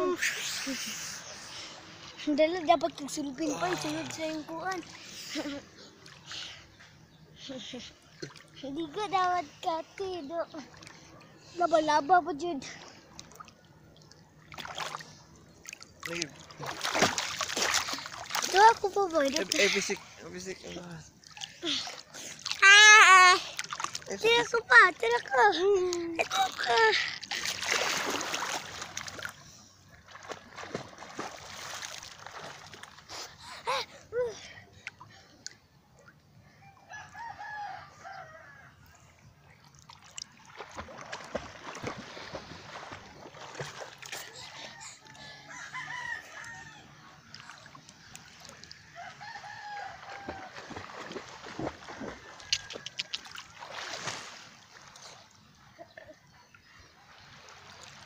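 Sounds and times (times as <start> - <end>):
seawater splashing: 12.6 - 33.4, 39.6 - 44.8, 47.2 - 55.2
rooster crowing: 36.6 - 38.8, 44.6 - 47.0, 48.9 - 51.0.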